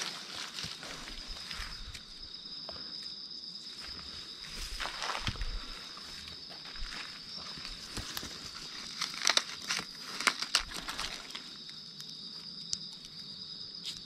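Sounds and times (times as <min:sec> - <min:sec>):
dry leaves crunching: 0:00.0 - 0:02.2, 0:03.8 - 0:11.5.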